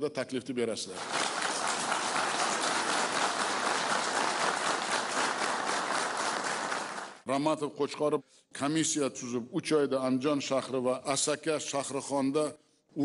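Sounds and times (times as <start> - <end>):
audience applauding: 1.0 - 7.2.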